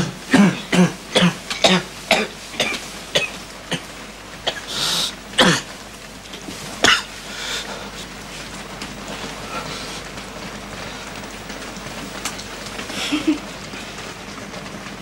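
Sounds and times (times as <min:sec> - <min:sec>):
person coughing: 0:00.0 - 0:03.9, 0:05.4 - 0:05.7, 0:06.8 - 0:07.1
breathy hiss: 0:00.0 - 0:11.6.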